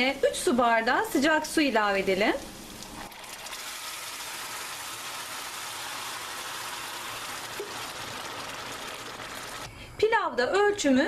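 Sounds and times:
water sizzling in hot pot: 0:01.4 - 0:09.7.

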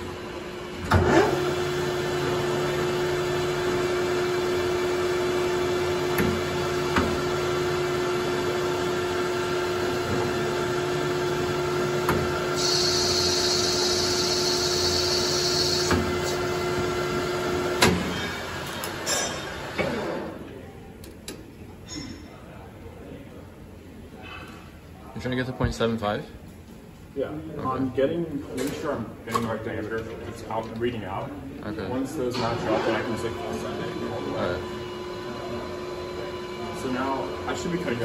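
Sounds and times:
metal lathe humming: 0:11.6 - 0:17.2
cutting tool hissing on metal: 0:12.6 - 0:16.4.

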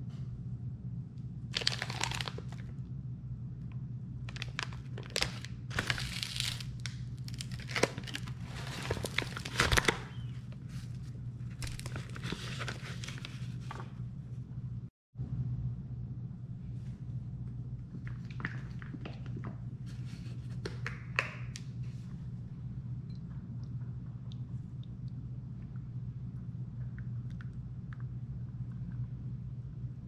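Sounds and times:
steady low hum: 0:00.0 - 0:30.0
paper bag crinkling: 0:01.6 - 0:02.7, 0:04.3 - 0:14.0.

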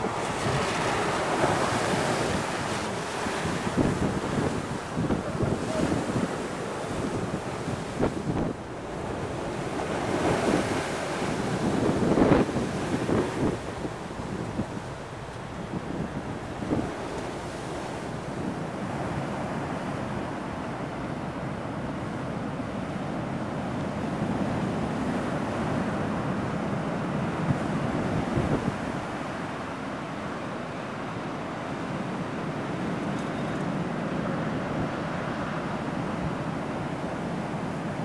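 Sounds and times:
wind buffeting microphone: 0:00.0 - 0:22.0, 0:23.3 - 0:33.1
waves breaking over seawall: 0:00.0 - 0:38.0.

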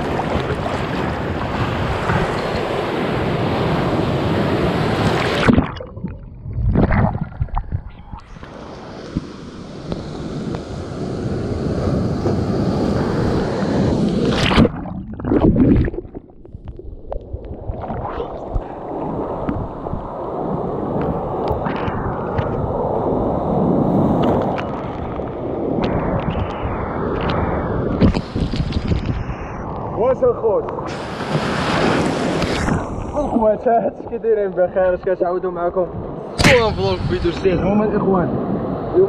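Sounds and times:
wave breaking with sharp splash: 0:00.0 - 0:06.1, 0:12.8 - 0:16.3, 0:30.9 - 0:33.1
wind on microphone: 0:00.0 - 0:33.2, 0:35.8 - 0:39.0
sea waves washing: 0:00.0 - 0:33.6.

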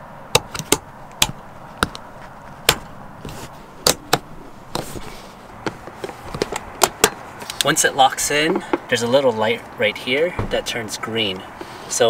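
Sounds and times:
handling rustle: 0:00.4 - 0:07.8.

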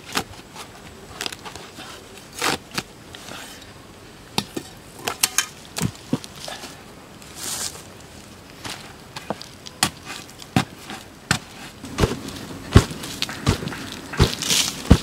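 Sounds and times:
knife digging rotted wood: 0:00.1 - 0:03.7, 0:08.6 - 0:15.0
log scraping on dry leaves: 0:05.1 - 0:15.0.

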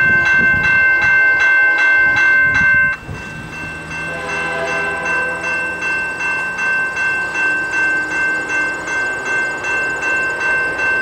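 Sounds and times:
level-crossing warning bell: 0:00.0 - 0:11.0.

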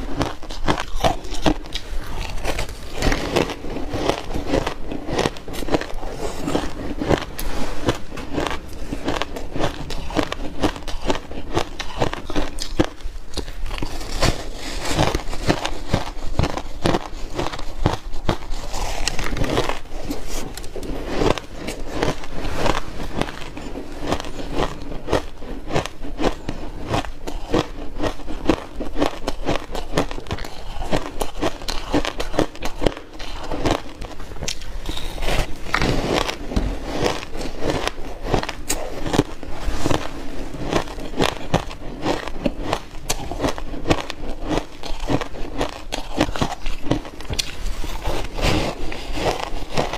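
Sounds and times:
crunching ice being chewed: 0:00.0 - 0:49.9.

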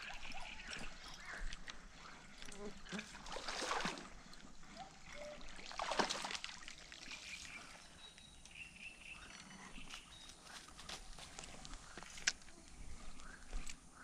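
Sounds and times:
fish splashing in water: 0:02.5 - 0:04.2, 0:04.8 - 0:07.5.

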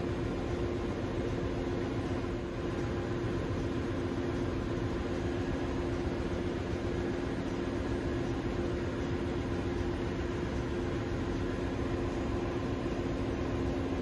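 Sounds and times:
engine-room machinery drone: 0:00.0 - 0:14.0.

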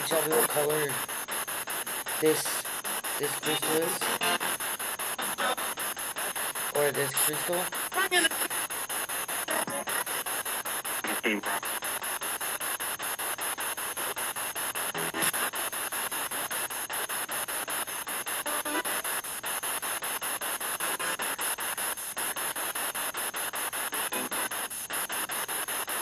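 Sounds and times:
faint voice-like fragments: 0:00.0 - 0:01.1, 0:02.1 - 0:04.5, 0:06.7 - 0:08.6, 0:11.0 - 0:11.6
radio static sweeping channels: 0:00.0 - 0:26.0.

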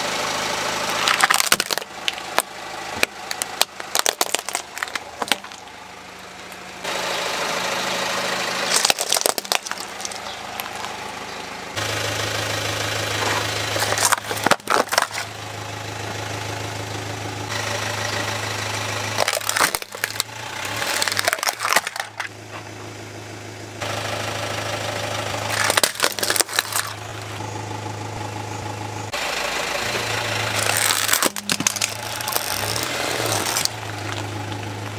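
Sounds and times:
car idling: 0:00.0 - 0:34.9
plastic cracking and crunching: 0:00.9 - 0:05.7, 0:08.7 - 0:11.0, 0:13.7 - 0:15.3, 0:19.2 - 0:22.3, 0:25.5 - 0:27.1, 0:30.6 - 0:34.6.

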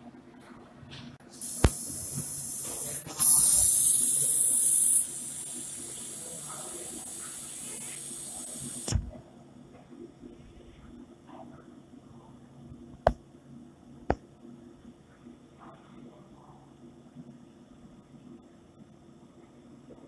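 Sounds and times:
laser engraving hiss: 0:01.4 - 0:09.1.

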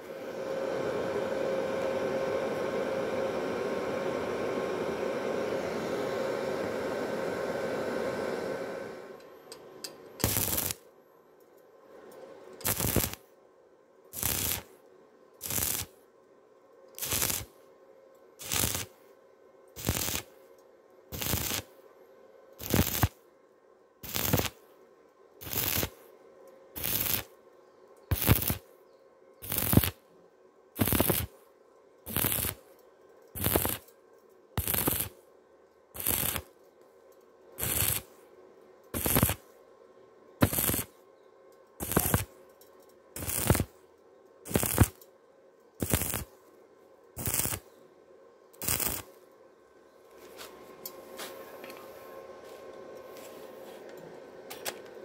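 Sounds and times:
faint steady hum: 0:00.0 - 0:55.0
welding arc crackling: 0:10.2 - 0:10.8, 0:12.6 - 0:13.3, 0:14.1 - 0:14.8, 0:15.4 - 0:16.0, 0:17.0 - 0:17.6, 0:18.4 - 0:19.0, 0:19.7 - 0:20.4, 0:21.1 - 0:21.7, 0:22.6 - 0:23.2, 0:24.0 - 0:24.6, 0:25.4 - 0:26.0, 0:26.8 - 0:27.4, 0:28.1 - 0:28.7, 0:29.4 - 0:30.0, 0:30.8 - 0:31.3, 0:32.1 - 0:32.7, 0:33.3 - 0:33.9, 0:34.6 - 0:35.2, 0:36.0 - 0:36.6, 0:37.6 - 0:38.2, 0:38.9 - 0:39.4, 0:40.4 - 0:40.9, 0:41.8 - 0:42.4, 0:43.2 - 0:43.8, 0:44.4 - 0:45.0, 0:45.8 - 0:46.4, 0:47.2 - 0:47.6, 0:48.6 - 0:49.2.

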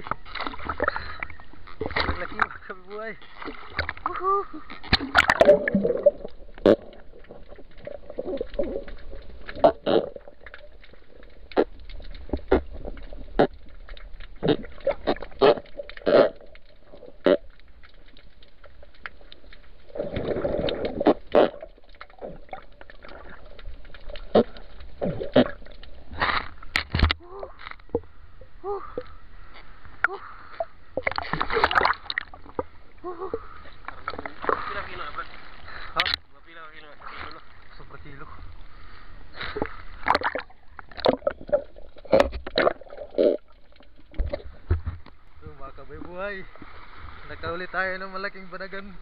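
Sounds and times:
rush of water: 0:00.0 - 0:27.5
muffled underwater knocks and clicks: 0:04.7 - 0:28.1, 0:39.6 - 0:46.7.

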